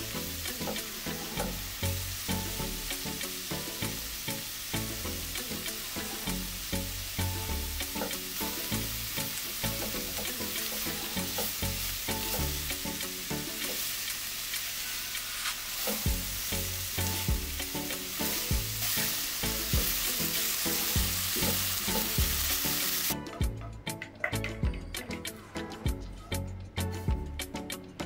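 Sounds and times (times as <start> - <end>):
vegetables sizzling in hot oil: 0.0 - 23.2
spatula stirring in pan: 2.3 - 6.5, 7.8 - 23.0.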